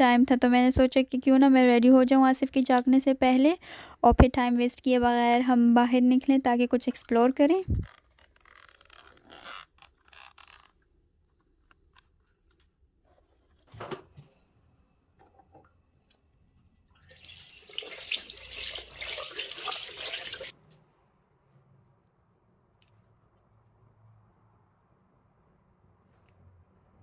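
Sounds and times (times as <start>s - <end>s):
tap running into washbasin: 17.1s - 20.5s.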